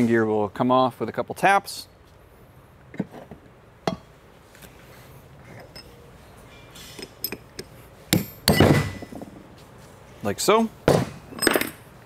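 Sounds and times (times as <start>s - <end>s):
metal tools clanking on workbench: 11.3s - 11.8s.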